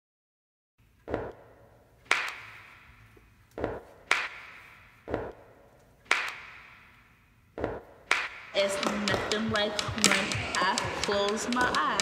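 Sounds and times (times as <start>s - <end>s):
hip-hop drum beat: 7.6s - 12.0s.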